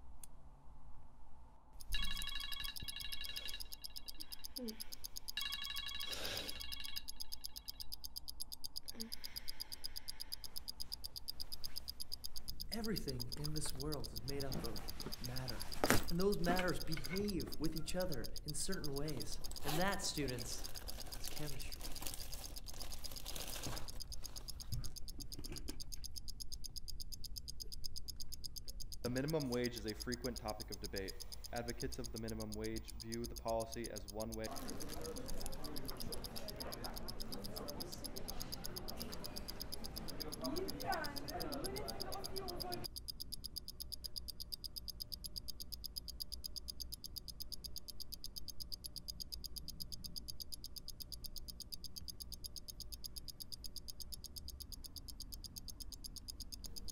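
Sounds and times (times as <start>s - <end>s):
pulsing electronic alarm tone: 1.8s - 8.0s
rapid even ticking: 1.8s - 56.9s.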